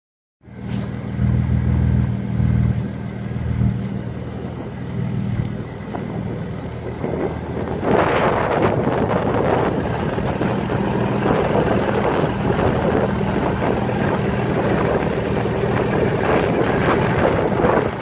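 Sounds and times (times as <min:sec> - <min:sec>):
truck engine idling: 0:00.4 - 0:18.0
rush of noise: 0:05.4 - 0:18.0.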